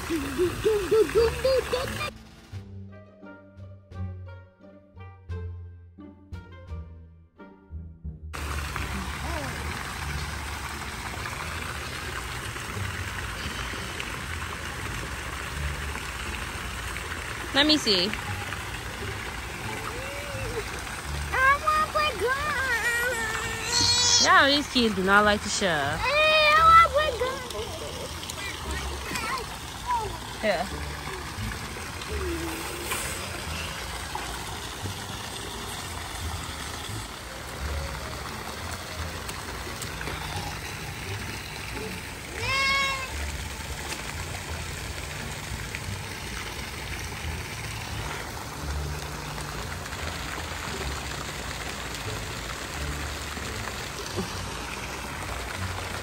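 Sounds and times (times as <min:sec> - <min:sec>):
water sloshing and trickling: 0:00.0 - 0:02.5, 0:08.4 - 0:56.0.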